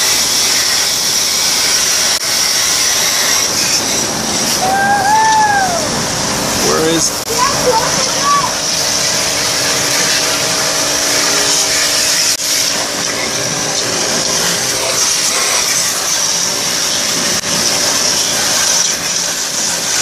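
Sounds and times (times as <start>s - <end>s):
pressure washer spraying water: 0.0s - 20.0s.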